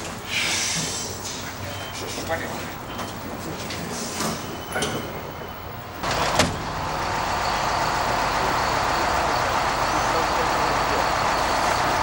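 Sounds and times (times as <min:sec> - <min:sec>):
vehicle doors clacking: 0:06.0 - 0:07.2
vehicle engine running: 0:06.0 - 0:12.0.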